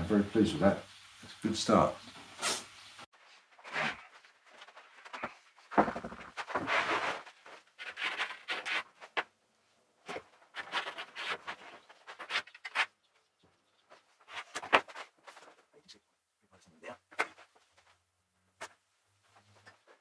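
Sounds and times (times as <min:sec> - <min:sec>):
wood scraping on wood: 0:03.4 - 0:09.3, 0:10.0 - 0:13.0.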